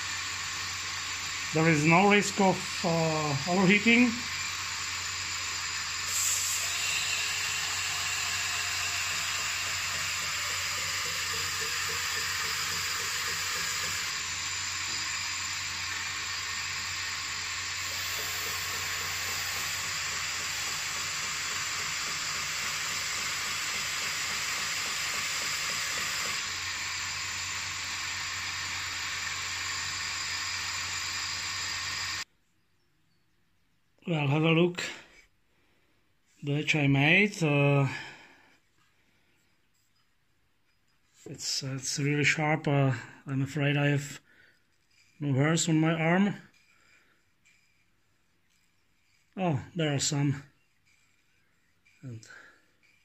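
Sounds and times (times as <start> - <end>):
motor low hum: 0.0 - 32.2
steel grinding on sander belt: 0.0 - 32.3, 41.4 - 53.0.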